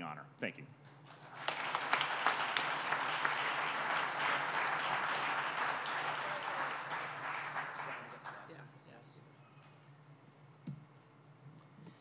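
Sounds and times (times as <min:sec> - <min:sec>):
audience applauding: 0:01.0 - 0:08.6.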